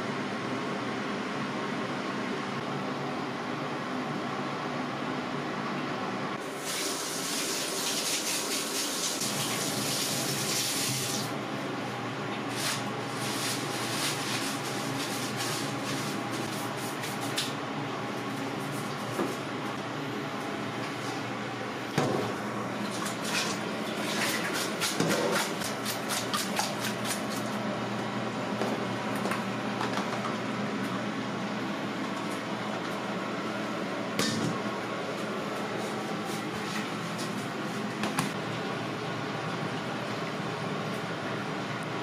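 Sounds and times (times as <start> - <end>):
machine hum: 9.2 - 42.0.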